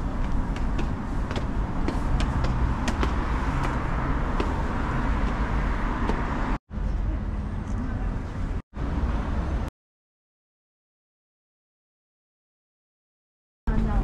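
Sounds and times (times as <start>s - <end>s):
passing cars rumble: 0.0s - 9.7s.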